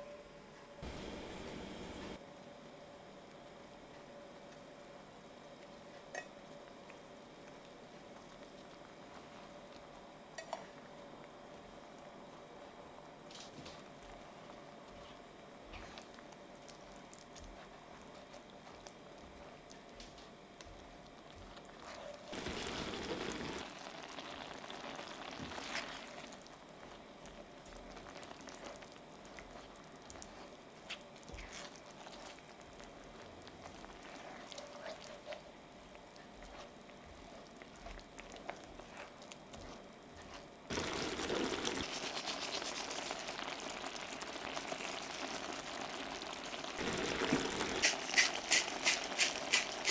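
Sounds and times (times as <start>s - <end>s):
rice simmering in a skillet: 0.8s - 49.9s
spatula stirring: 15.0s - 19.9s, 20.6s - 49.9s.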